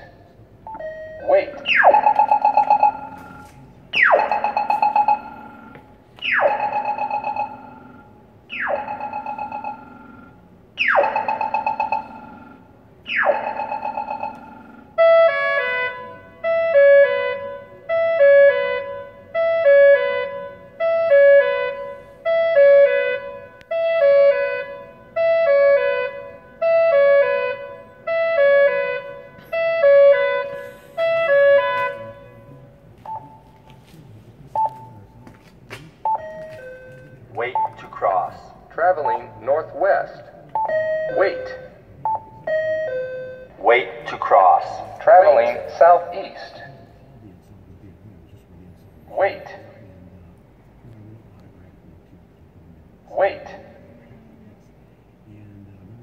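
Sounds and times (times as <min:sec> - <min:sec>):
pedestrian signal chirps: 0:10.9 - 0:33.9, 0:36.0 - 0:39.6, 0:40.5 - 0:46.5.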